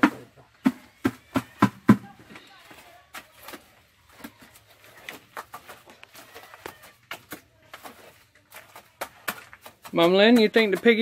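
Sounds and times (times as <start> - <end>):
trowel and gravel clicking: 3.0 - 11.0.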